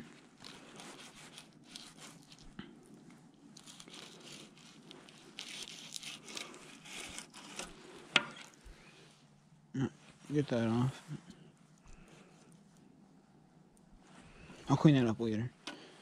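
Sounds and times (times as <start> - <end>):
knife scraping and tearing fish skin: 0.4 - 2.6, 3.5 - 8.6.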